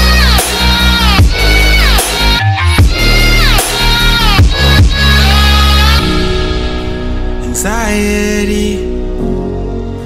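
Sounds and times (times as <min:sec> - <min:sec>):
electronic beat with heavy bass: 0:00.0 - 0:06.0.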